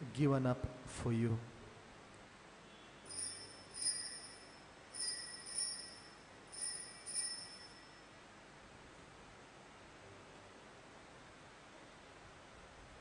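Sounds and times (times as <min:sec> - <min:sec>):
altar bells jingling: 0:03.1 - 0:08.0.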